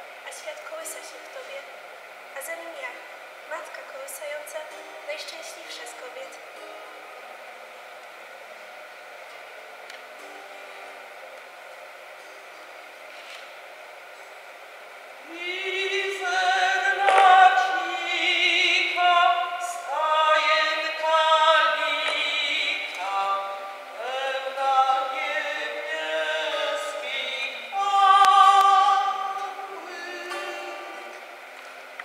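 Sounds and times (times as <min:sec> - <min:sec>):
acoustic guitar: 0:00.0 - 0:32.0
person singing a slow carol: 0:15.2 - 0:31.5.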